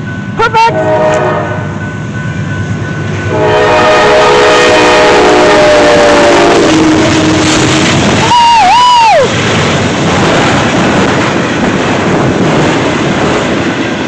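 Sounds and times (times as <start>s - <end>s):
locomotive engine and rail rumble: 0.0s - 14.0s
train air horn chord: 0.6s - 1.8s, 3.3s - 7.8s.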